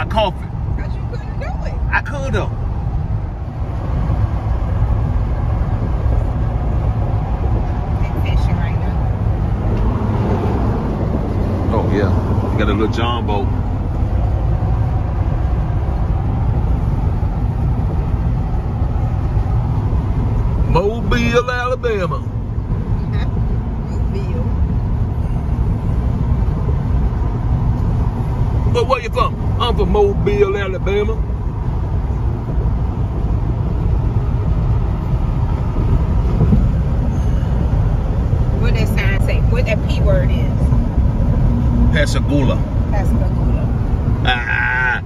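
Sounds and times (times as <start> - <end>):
car cabin road noise: 0.0 - 45.0.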